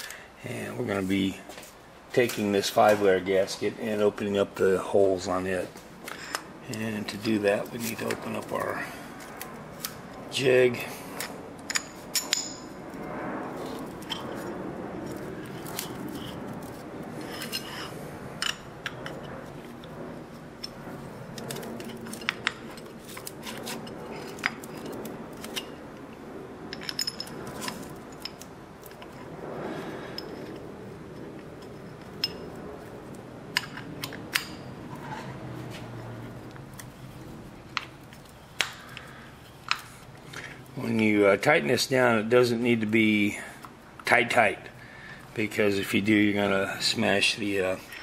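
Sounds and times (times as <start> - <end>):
light metallic clinks and scrapes: 10.8 - 13.0, 13.6 - 41.2, 46.9 - 48.0.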